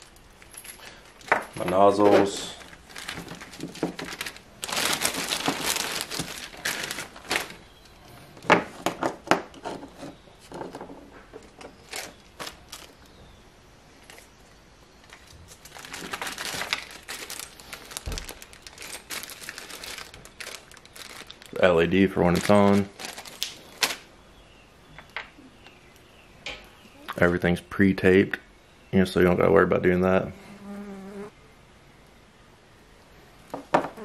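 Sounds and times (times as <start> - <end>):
packaging crinkling: 1.1 - 7.8, 11.8 - 13.1, 15.1 - 24.1.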